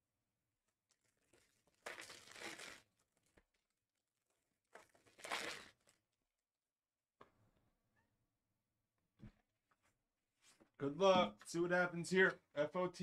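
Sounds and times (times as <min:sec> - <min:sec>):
card pack wrappers tearing: 0:01.2 - 0:02.8.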